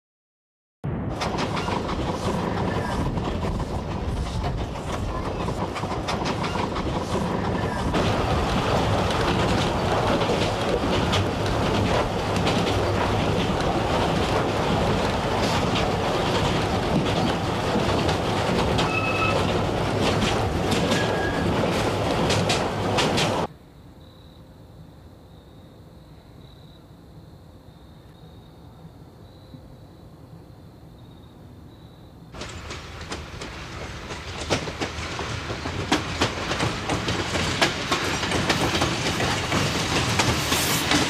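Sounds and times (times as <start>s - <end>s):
train rumbling on rails: 0.8s - 23.5s, 32.2s - 41.0s
wheels clicking over track: 1.2s - 23.5s, 32.4s - 41.0s.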